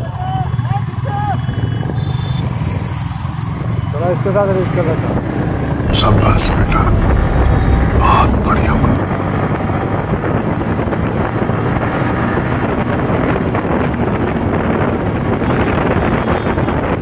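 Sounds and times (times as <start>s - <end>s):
wind rushing over microphone: 5.6s - 17.0s.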